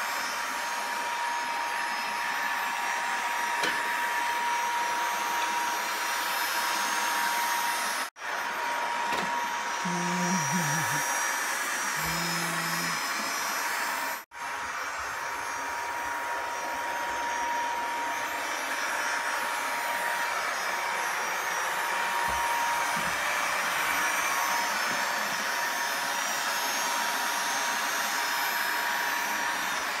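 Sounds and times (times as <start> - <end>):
robot vacuum cleaner whirring: 0.1 - 30.0.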